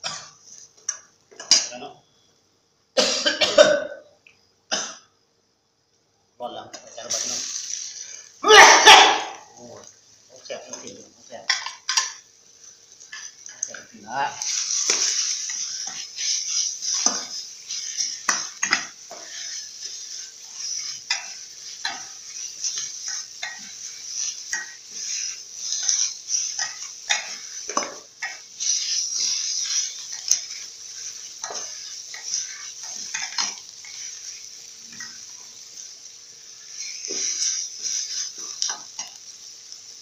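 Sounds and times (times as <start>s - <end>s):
hiss of frying: 0.0s - 40.0s
metal spatula scraping a pan: 11.5s - 35.4s.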